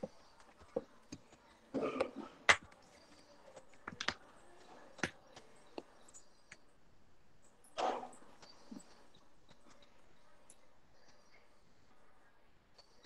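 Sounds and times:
faint clicks and taps: 0.0s - 6.7s, 8.4s - 12.0s.

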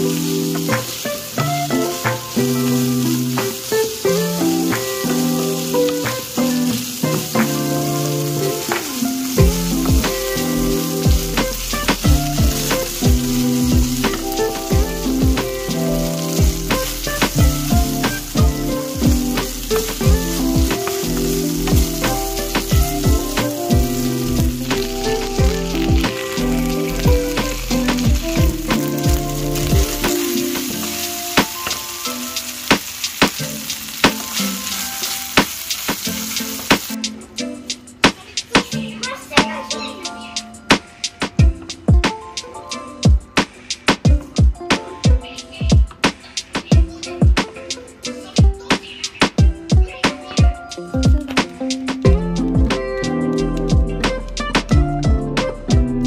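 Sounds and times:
background music with deep bass: 0.0s - 35.3s, 49.4s - 56.0s
bacon sizzling in a frying pan: 0.0s - 37.0s
wooden spoon stirring: 0.0s - 37.0s.

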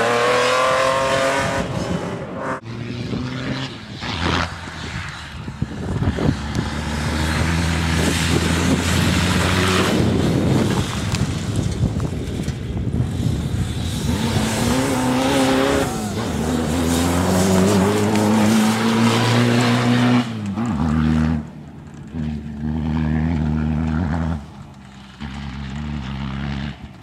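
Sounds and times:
truck engine passing at speed: 0.0s - 27.0s
rushing noise: 6.2s - 21.7s.

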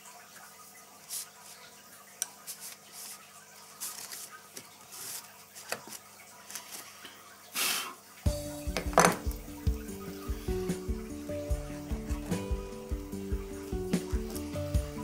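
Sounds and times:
music: 8.2s - 15.0s.

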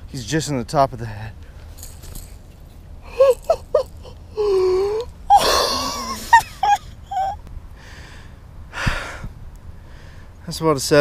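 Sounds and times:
man moaning: 4.3s - 6.0s.

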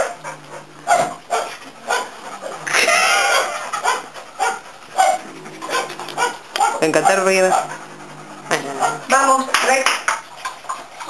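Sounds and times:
dog barking: 0.0s - 7.9s, 8.7s - 9.2s
dog wavering cry: 0.0s - 9.2s.

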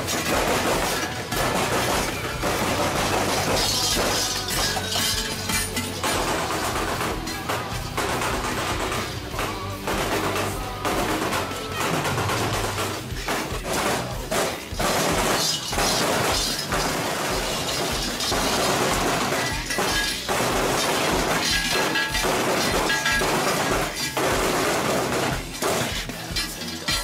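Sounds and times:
music with deep beat: 0.0s - 27.0s.

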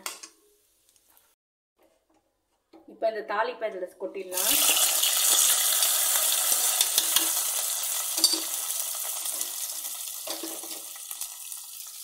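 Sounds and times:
hot oil sizzling: 4.4s - 12.0s.

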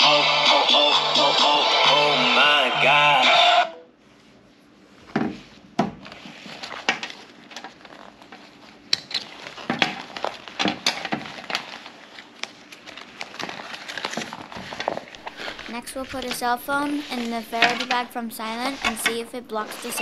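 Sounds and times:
plastic bag crinkling: 6.3s - 20.0s.

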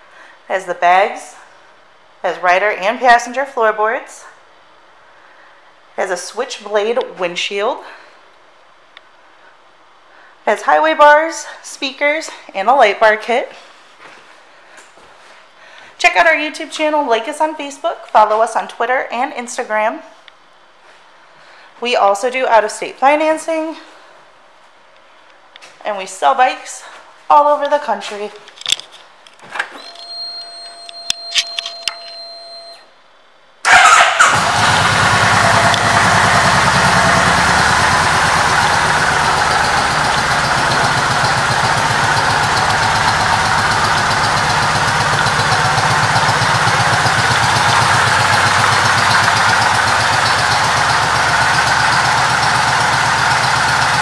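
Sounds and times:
faint steady whine: 29.3s - 33.6s
clicks: 29.6s - 32.8s
motorcycle engine starting and idling: 33.6s - 54.0s.

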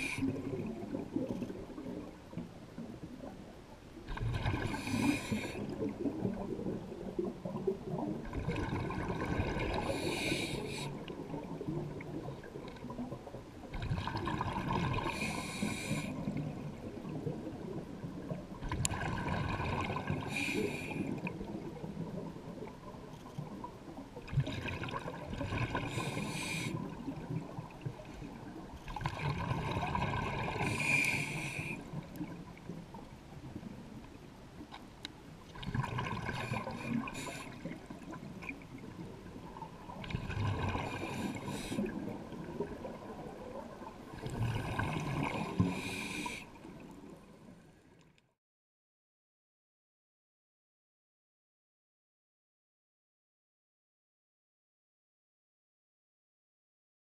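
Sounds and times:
diver breathing through regulator: 0.0s - 0.4s, 4.6s - 5.7s, 9.8s - 11.0s, 15.0s - 16.2s, 20.2s - 21.2s, 25.8s - 26.9s, 30.6s - 31.9s, 36.4s - 37.7s, 40.8s - 42.0s, 44.8s - 46.5s
exhaled bubbles gurgling: 0.0s - 33.9s, 35.5s - 47.3s.

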